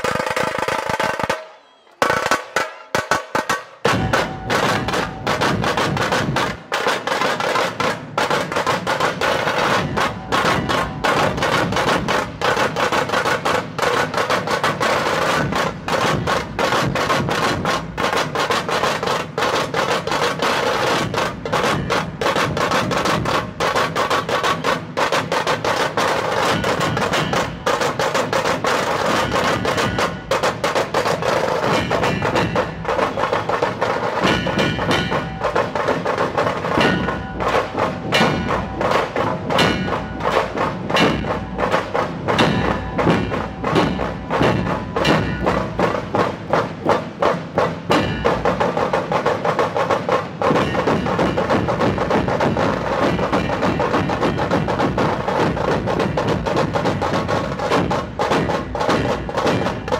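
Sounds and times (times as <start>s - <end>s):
dhol barrel drum beats: 0.0s - 59.9s
tasha drums drumming: 0.0s - 59.9s.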